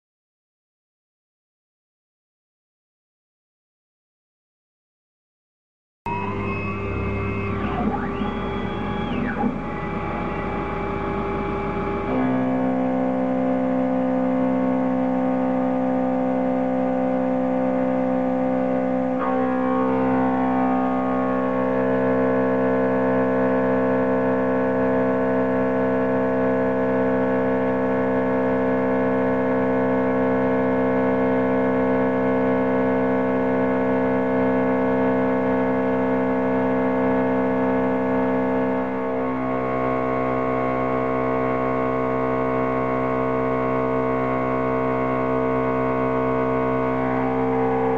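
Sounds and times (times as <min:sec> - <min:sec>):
milling machine cutting metal: 0:06.1 - 0:12.6.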